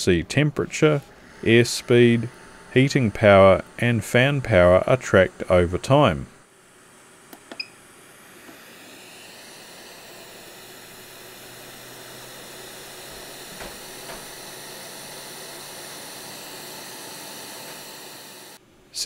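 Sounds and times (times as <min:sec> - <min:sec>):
fan blowing hiss of air: 0:00.0 - 0:06.3.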